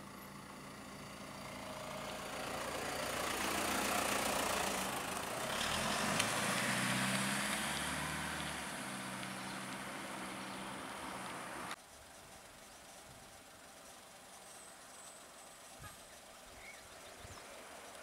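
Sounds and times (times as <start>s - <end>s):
diesel truck driving past: 0.0s - 11.8s
tyre and road noise: 0.0s - 18.0s.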